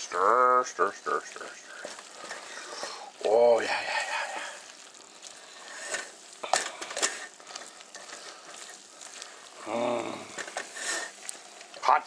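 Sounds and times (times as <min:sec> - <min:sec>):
spatula scraping in a pot: 0:01.7 - 0:09.6, 0:10.2 - 0:11.8.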